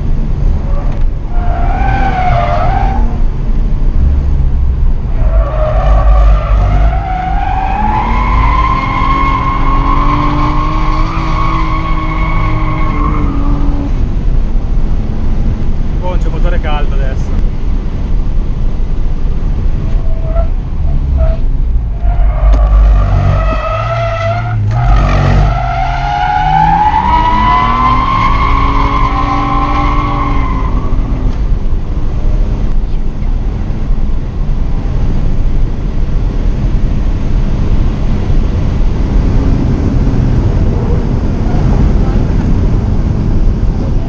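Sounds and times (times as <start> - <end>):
car engine under load: 0.0 - 44.0
road and wind noise: 0.0 - 44.0.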